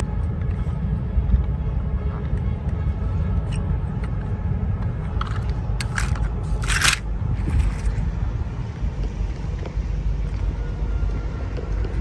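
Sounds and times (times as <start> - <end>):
steady low rumble: 0.0 - 12.0
plastic toy scraping rustles: 5.1 - 8.0.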